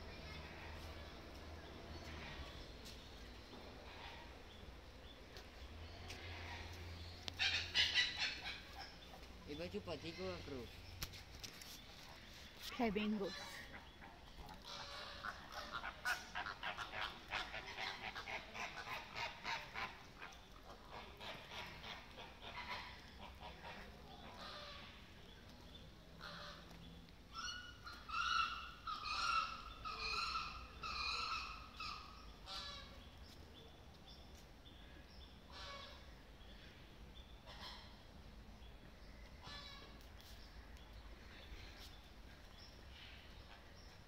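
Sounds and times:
flamingos honking and gabbling: 6.1s - 9.1s, 13.0s - 25.3s, 26.2s - 26.7s, 27.3s - 33.1s, 35.5s - 36.3s, 37.4s - 38.2s, 39.3s - 40.1s.

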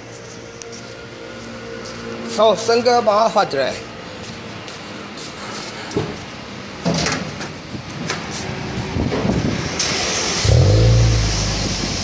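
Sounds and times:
car engine starting and idling: 9.1s - 12.0s.

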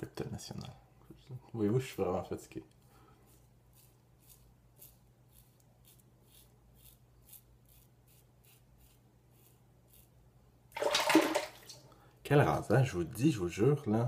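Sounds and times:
razor scraping stubble: 3.2s - 10.3s.

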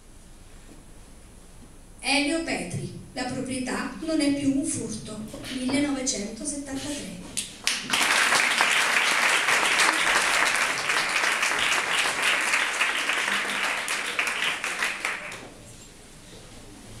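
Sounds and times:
audience applauding: 7.6s - 15.7s.

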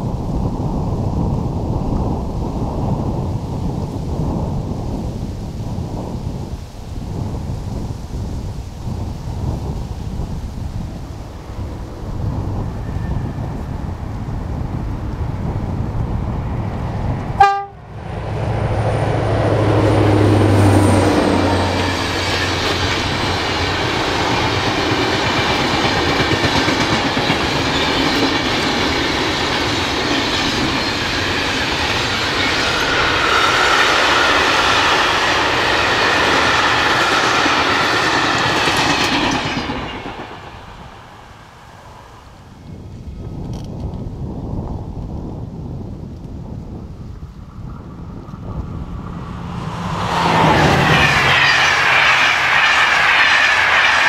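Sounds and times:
locomotive engine drone: 10.9s - 38.6s, 47.4s - 54.0s.

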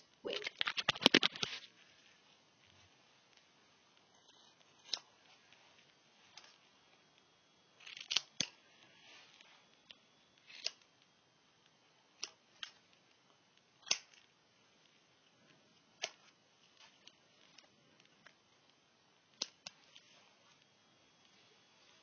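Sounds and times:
scissors snipping hair: 4.8s - 5.1s, 7.8s - 8.6s, 10.4s - 10.9s, 13.8s - 14.3s.

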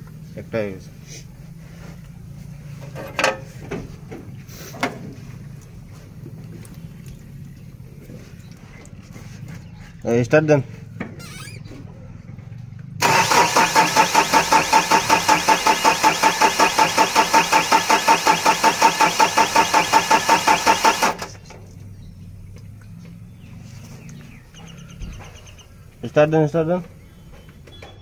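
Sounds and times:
starter motor cranking diesel engine: 13.0s - 21.5s.

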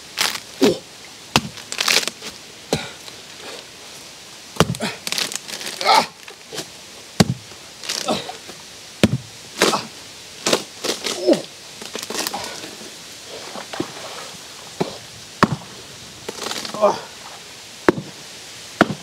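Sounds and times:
machete chopping wet log: 0.2s - 2.1s, 4.6s - 4.9s, 7.2s - 7.5s, 9.0s - 9.9s, 14.8s - 15.7s, 17.8s - 18.2s, 18.8s - 19.0s.

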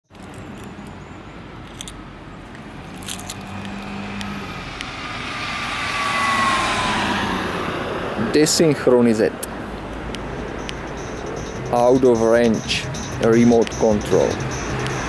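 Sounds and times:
vehicle passing by: 2.8s - 8.9s.

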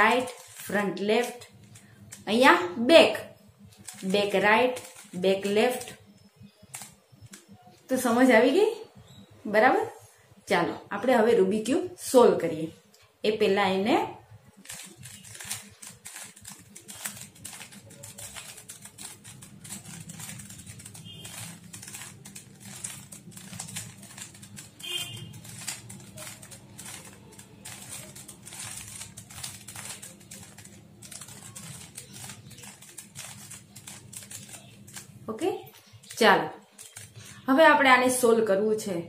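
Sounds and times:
puzzle cube clicking and rattling: 0.0s - 2.3s, 3.6s - 7.7s, 14.5s - 37.5s.

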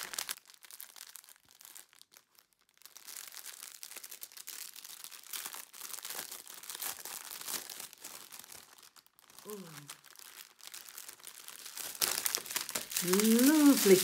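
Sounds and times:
plastic sleeve crinkling: 0.0s - 14.0s.

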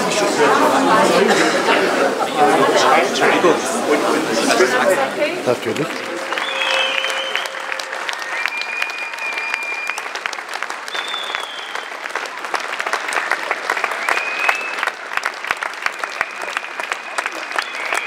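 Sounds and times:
crowd applauding: 0.0s - 18.0s
long high tones: 5.9s - 10.4s.

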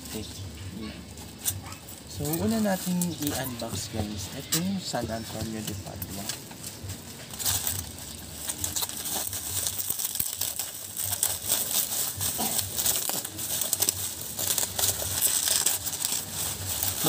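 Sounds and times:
bubble wrap crinkling: 0.0s - 17.0s.

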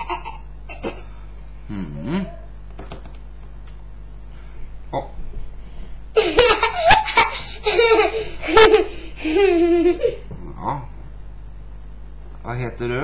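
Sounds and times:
girl laughing: 0.0s - 0.9s, 6.2s - 10.4s.

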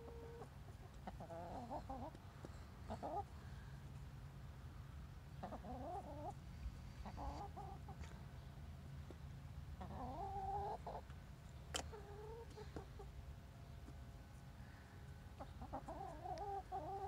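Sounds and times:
chickens clucking: 0.0s - 3.4s, 5.3s - 8.2s, 9.0s - 14.0s, 15.3s - 17.0s.

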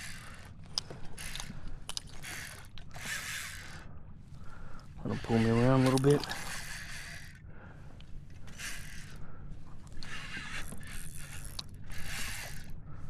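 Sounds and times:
fishing reel drag and gears: 0.0s - 3.9s, 4.8s - 7.4s, 8.3s - 9.3s, 9.9s - 12.8s.

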